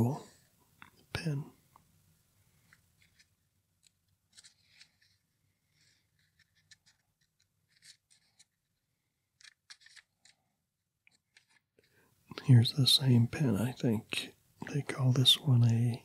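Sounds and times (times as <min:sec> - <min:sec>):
hand rustling over paper page: 0:02.5 - 0:10.4.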